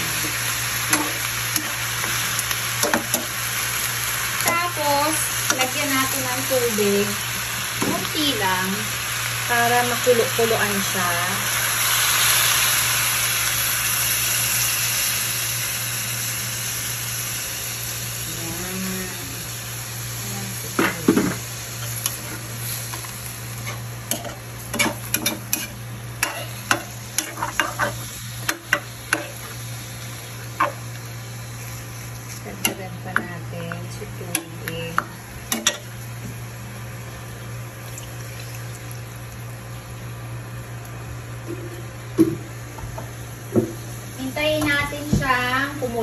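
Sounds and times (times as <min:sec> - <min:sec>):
pork sizzling in hot pan: 0:00.0 - 0:46.0
metal spoon scraping a pan: 0:23.6 - 0:29.6.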